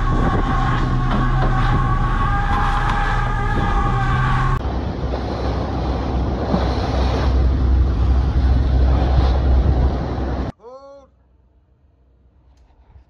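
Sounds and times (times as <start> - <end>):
water rushing: 0.0 - 10.5
wind buffeting microphone: 0.0 - 10.5
boat engine rumble: 0.0 - 13.0.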